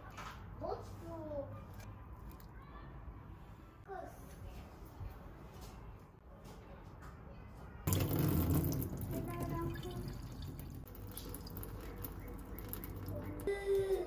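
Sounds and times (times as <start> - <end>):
water running into container: 7.9 - 13.6.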